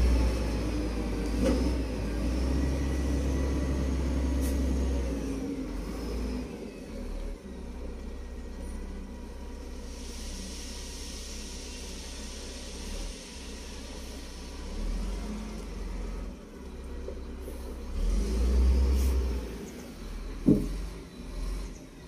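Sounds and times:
vehicle engine rumble: 0.0 - 22.0
steady hiss: 9.7 - 15.1.

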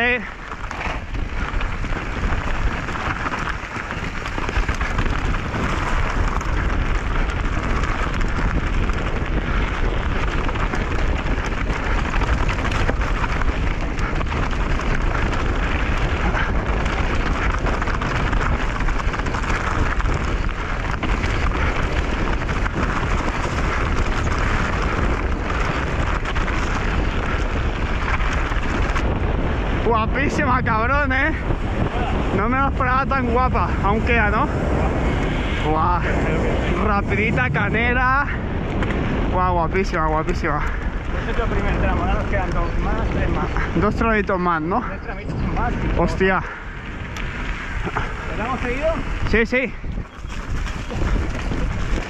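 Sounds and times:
bike tyres on dirt and stones: 0.0 - 52.0
wind rumble on microphone: 0.0 - 52.0
bike knocking over bumps: 0.3 - 29.4.

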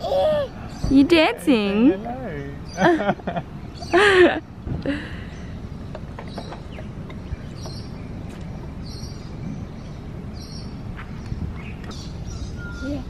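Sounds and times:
wind rumble on microphone: 4.6 - 13.0.

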